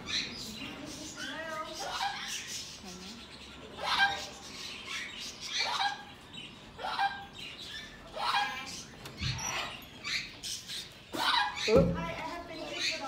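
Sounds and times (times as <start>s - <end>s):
parrot shrill calls: 3.8s - 6.2s, 6.8s - 10.4s, 11.1s - 11.7s.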